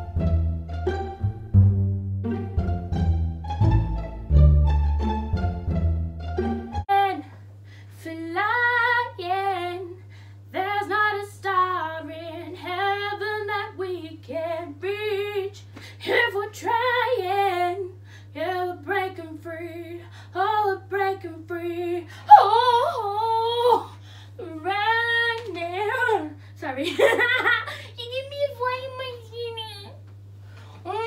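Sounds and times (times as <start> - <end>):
woman singing unaccompanied: 6.9 - 27.4
faint low hum: 6.9 - 31.0.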